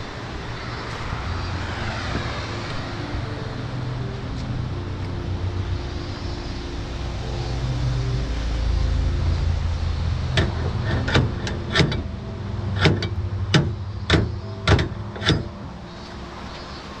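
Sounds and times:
sharp knocks: 10.4 - 12.1, 12.8 - 15.6.

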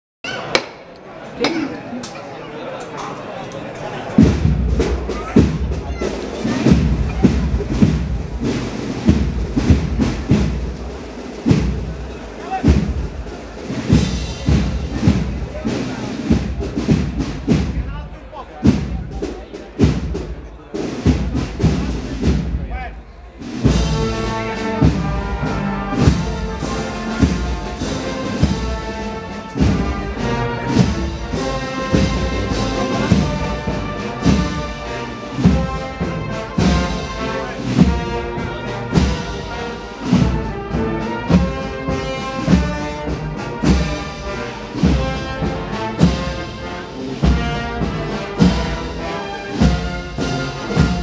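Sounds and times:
brass band playing march: 4.0 - 51.0
bass drum beats: 4.2 - 18.0, 49.6 - 51.0.

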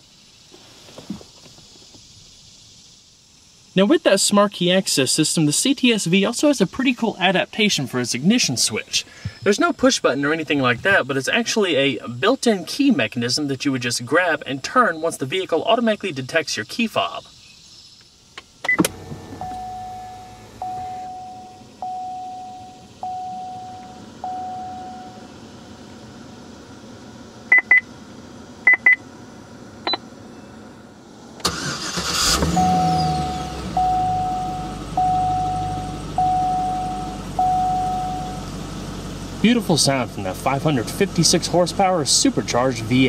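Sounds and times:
car engine starting and idling: 18.0 - 43.0
dashboard warning chime dinging: 18.6 - 25.3, 27.5 - 27.9, 28.7 - 29.0, 29.8 - 30.6, 31.5 - 38.6
short high beeps: 19.4 - 25.2, 32.5 - 38.4.

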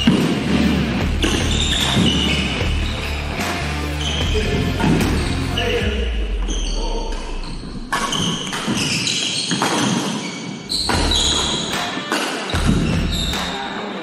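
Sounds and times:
shoes squeaking on wooden floor: 0.0 - 14.0
racket striking shuttlecock: 7.9 - 10.2, 10.8 - 13.7.

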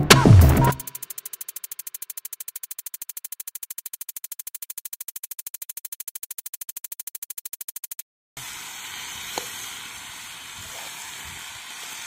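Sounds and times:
rapid pulsing synthesizer: 0.0 - 8.0.

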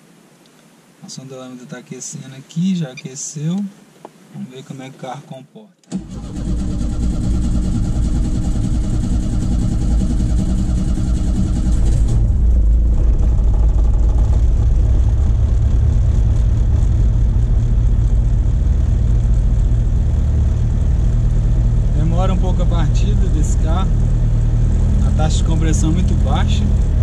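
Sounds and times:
car engine starting and idling: 5.8 - 27.0
engine hiss: 5.9 - 27.0.

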